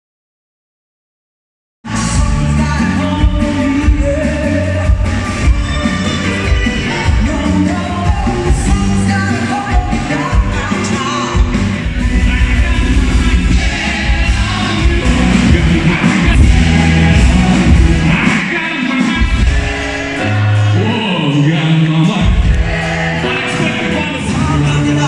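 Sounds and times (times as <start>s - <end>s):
pop-rock band playing live: 1.8s - 25.0s
lead singer singing: 1.9s - 25.0s.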